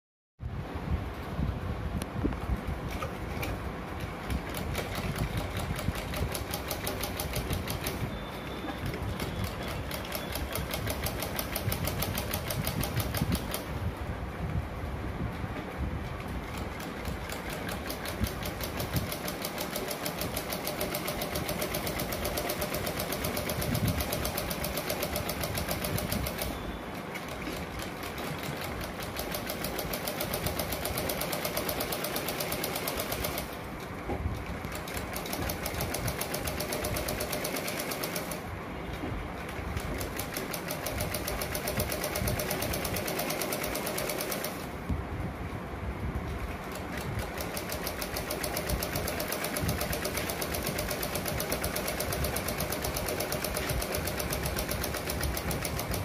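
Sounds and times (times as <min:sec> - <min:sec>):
sewing machine stitching: 0:16.4 - 0:33.7, 0:34.7 - 0:38.5, 0:39.8 - 0:44.8, 0:46.7 - 0:56.0.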